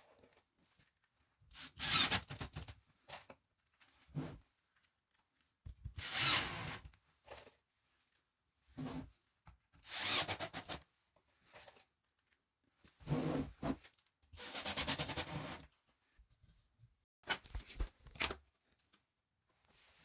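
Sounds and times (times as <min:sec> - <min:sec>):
cordless drill drilling: 0:01.6 - 0:02.4, 0:06.0 - 0:06.8, 0:09.8 - 0:10.8.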